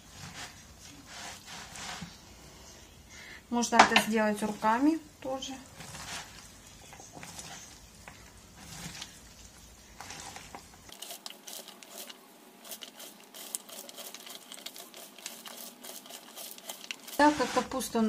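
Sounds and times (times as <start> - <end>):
cabbage crunching and rustling: 8.4 - 18.0.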